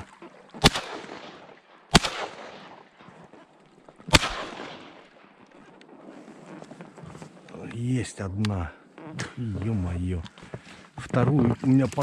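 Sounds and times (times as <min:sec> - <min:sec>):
shotgun shots with echo: 0:00.6 - 0:02.9, 0:04.1 - 0:05.1.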